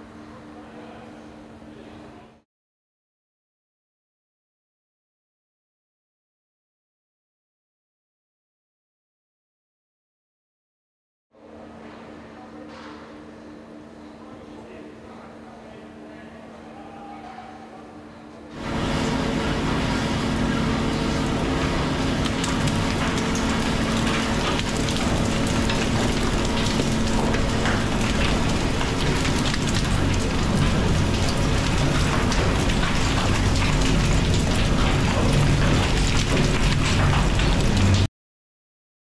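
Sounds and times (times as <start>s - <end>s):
low machine hum: 0.0s - 2.4s, 11.4s - 38.1s.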